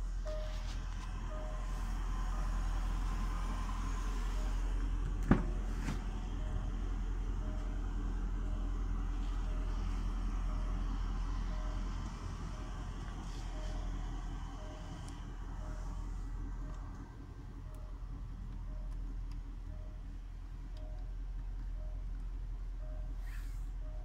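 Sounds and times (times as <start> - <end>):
steady low hum: 0.0 - 24.0
soft electronic beep: 0.2 - 1.7, 21.8 - 22.1, 22.8 - 24.0.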